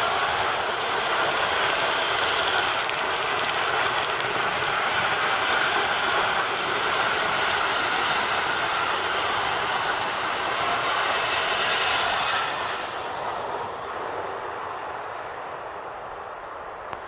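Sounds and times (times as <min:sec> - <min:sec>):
freight train wagons rolling: 0:00.0 - 0:07.7.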